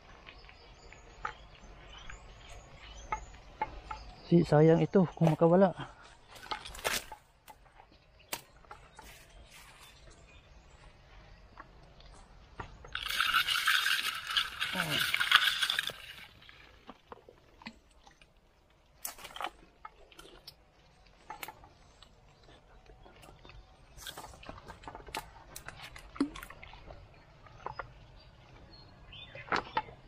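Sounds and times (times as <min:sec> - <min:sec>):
dry undergrowth rustling and crackling: 0:06.0 - 0:10.2, 0:12.9 - 0:18.2.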